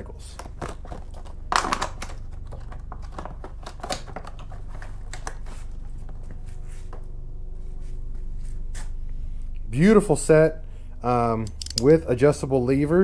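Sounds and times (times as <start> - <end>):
faint low hum: 0.0 - 13.0
hands rustling and clicking: 0.3 - 6.8.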